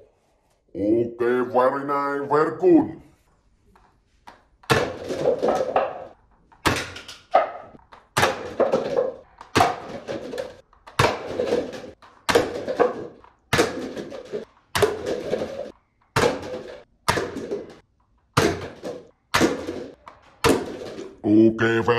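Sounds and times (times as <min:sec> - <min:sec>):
paper cups clattering: 0:03.9 - 0:21.4.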